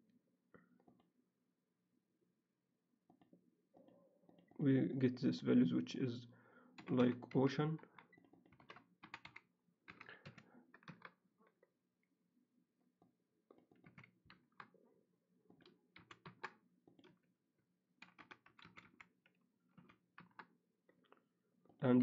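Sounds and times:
faint typing on keyboard: 6.6 - 11.8, 12.8 - 17.3, 18.0 - 22.0.

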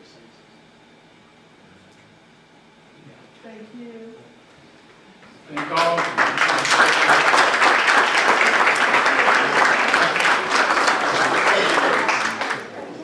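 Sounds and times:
crowd applauding: 5.5 - 13.0.

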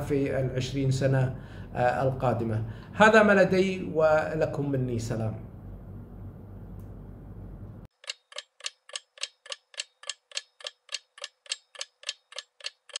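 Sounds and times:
clock ticking: 7.9 - 13.0.

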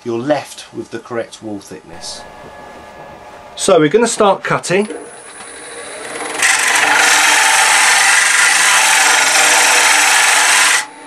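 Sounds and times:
lathe running: 1.9 - 9.4.

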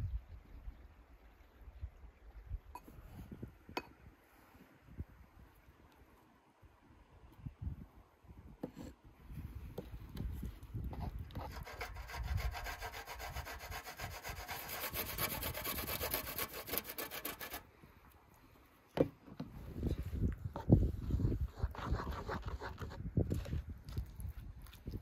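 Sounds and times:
food grated on metal grater: 11.5 - 17.6.

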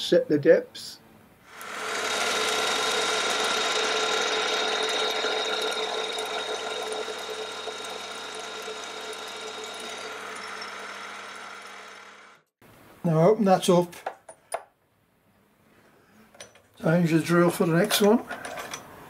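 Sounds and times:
milling machine spindle whine: 1.5 - 12.4
drill boring into wood: 1.5 - 12.5.

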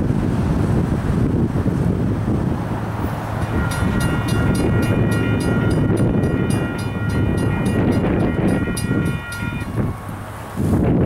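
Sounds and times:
railroad crossing bell ringing: 3.0 - 10.7.

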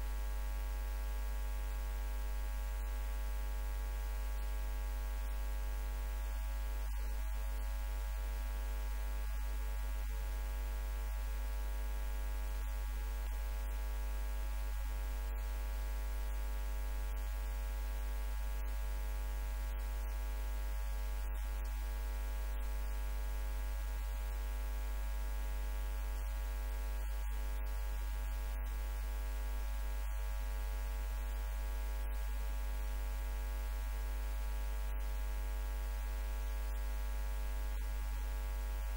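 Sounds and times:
electrical mains hum: 0.0 - 38.9.

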